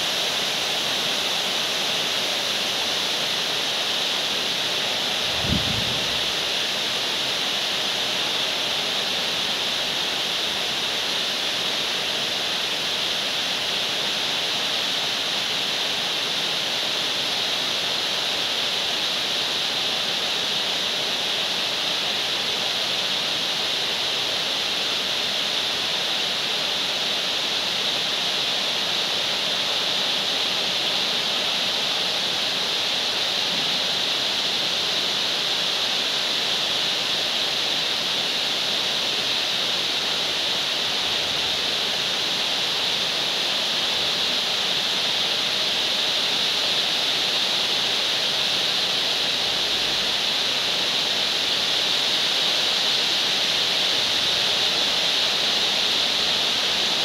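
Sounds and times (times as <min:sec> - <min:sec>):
heavy rain falling: 0:00.0 - 0:11.4, 0:29.1 - 0:57.0.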